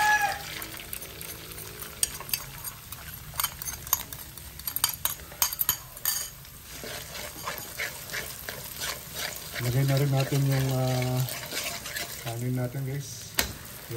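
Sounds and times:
egg sizzling in oil: 0:00.0 - 0:13.9
metal spatula scraping wok: 0:00.6 - 0:13.2.

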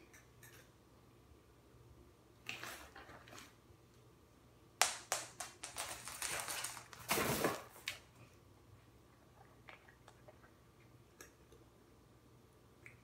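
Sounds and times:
cat claws clicking on hard floor: 0:04.8 - 0:07.0.

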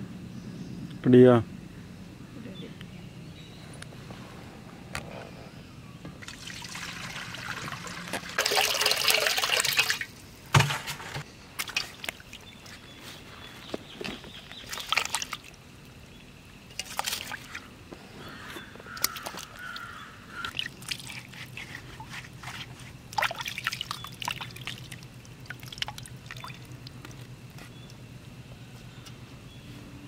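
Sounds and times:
water splashing in a steel bowl: 0:06.2 - 0:10.8, 0:11.6 - 0:12.8, 0:14.5 - 0:15.6, 0:16.7 - 0:17.7, 0:19.0 - 0:19.8, 0:20.4 - 0:27.3.

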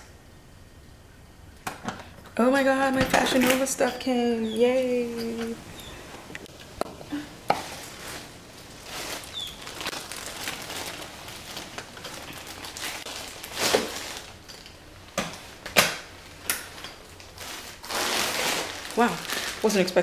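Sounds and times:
package rustling: 0:07.6 - 0:20.0.

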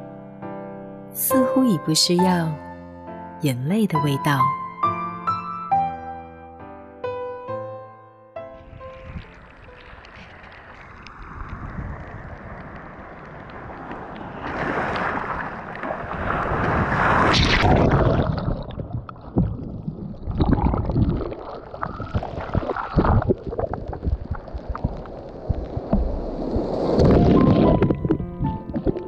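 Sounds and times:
sea water churning and splashing: 0:08.5 - 0:29.0.

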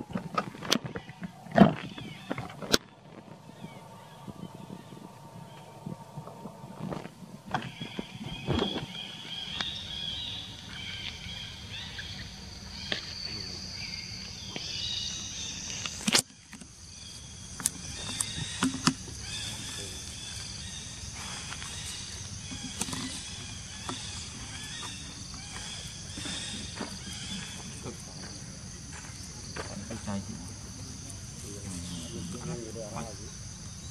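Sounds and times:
insects calling in pulsing bands: 0:00.0 - 0:33.9.

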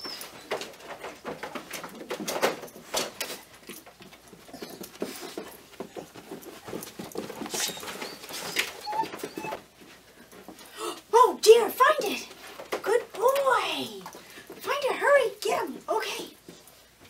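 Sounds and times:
dog footsteps: 0:00.0 - 0:17.0
leash clicks and jingles: 0:00.0 - 0:17.0.

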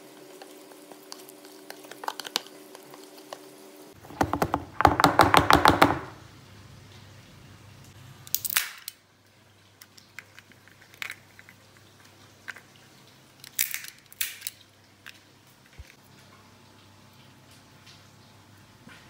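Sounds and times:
walnut shells cracking: 0:08.3 - 0:09.0, 0:13.4 - 0:15.2.

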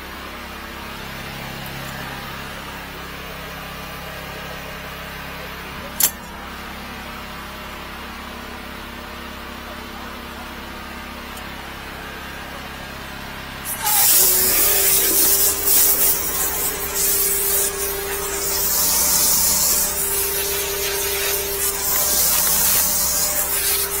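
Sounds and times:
engine humming: 0:09.7 - 0:24.0
steady whine: 0:11.3 - 0:24.0
water jet hissing spray: 0:13.7 - 0:24.0.

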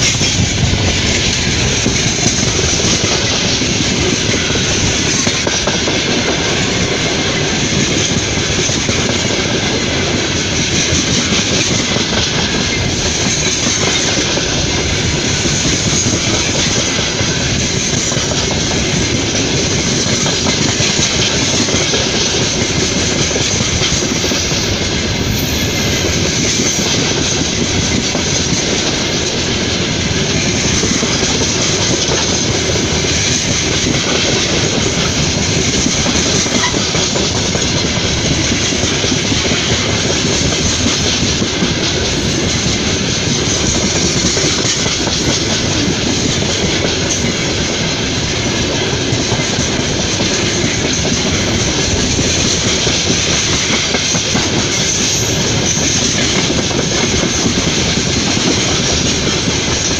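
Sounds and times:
train wheels on rails: 0:00.0 - 0:59.9.

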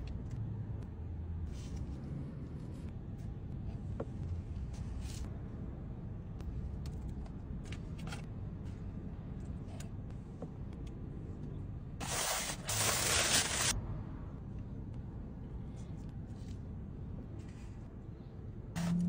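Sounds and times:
steady low rumble: 0:00.0 - 0:19.0
paper wrapping rustling: 0:12.0 - 0:13.8.

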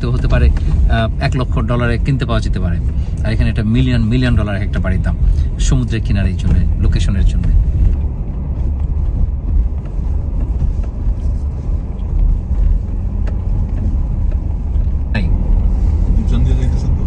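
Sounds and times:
engine and tyres rumbling on road: 0:00.0 - 0:17.0.

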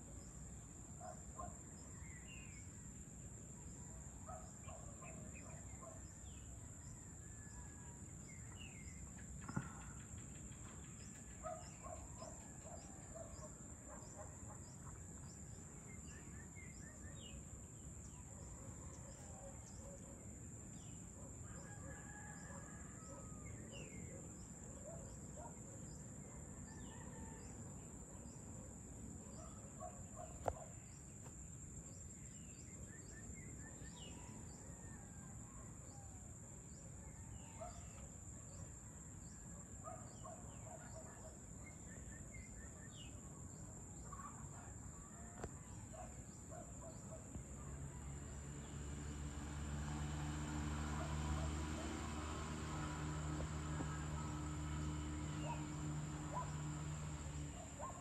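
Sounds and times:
rooster crowing: 0:21.6 - 0:23.4.

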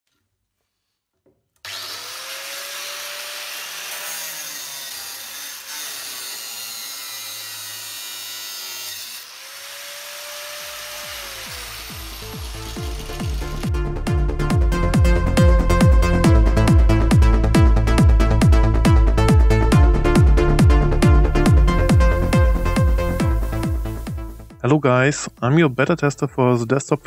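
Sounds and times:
angle grinder cutting metal: 0:01.6 - 0:13.8.

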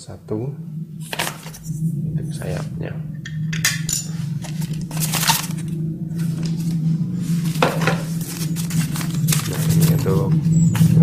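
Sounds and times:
steady low hum: 0:00.0 - 0:11.0
paper rustling and crinkling: 0:01.0 - 0:01.6, 0:04.4 - 0:11.0.

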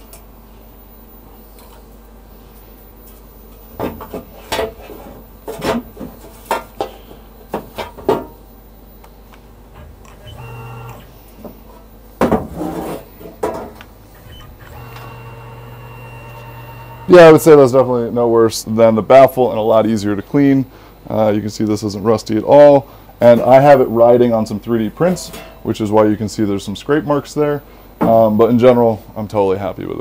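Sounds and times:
steady motor hum: 0:09.5 - 0:12.0, 0:14.0 - 0:17.9.

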